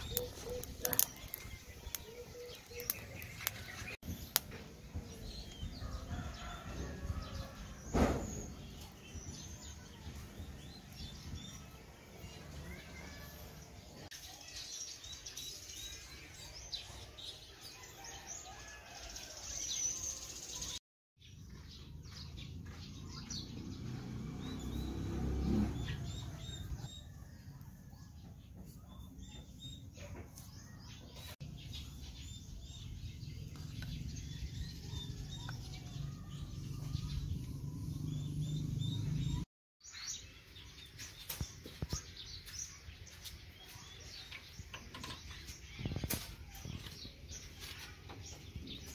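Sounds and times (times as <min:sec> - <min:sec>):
dry twigs clicking: 0:00.0 - 0:04.5
small birds chirping: 0:00.0 - 0:48.9.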